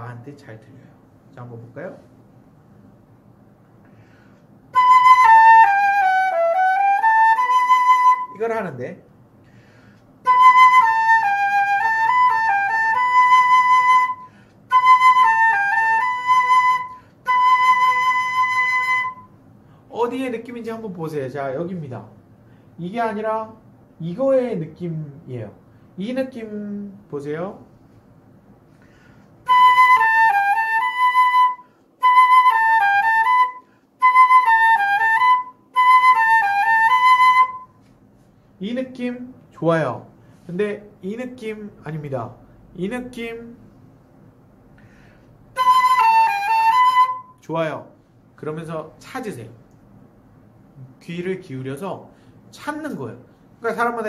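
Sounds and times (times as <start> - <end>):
solo flute phrase: 4.7 - 8.5, 29.5 - 37.8, 45.5 - 47.5.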